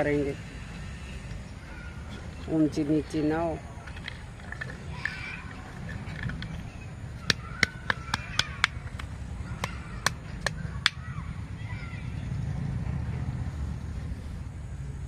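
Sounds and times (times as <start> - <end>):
stick clicking and tapping in soil: 7.2 - 11.0.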